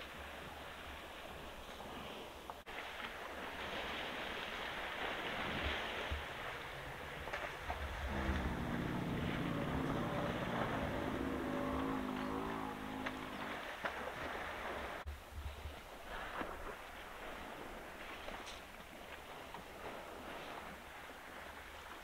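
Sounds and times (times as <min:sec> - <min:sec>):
elephant low rumble: 0:06.2 - 0:15.0.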